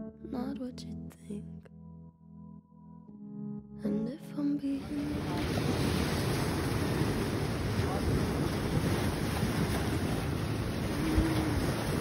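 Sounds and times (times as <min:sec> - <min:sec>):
small waves washing on sand: 0:04.8 - 0:12.0
wind buffeting microphone: 0:04.9 - 0:12.0.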